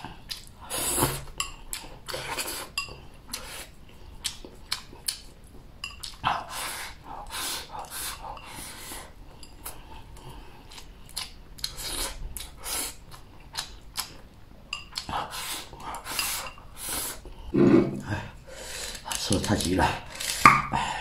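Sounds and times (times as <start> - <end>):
chewing: 0.0 - 8.6, 9.4 - 17.4
throaty vocal sound: 17.5 - 18.4.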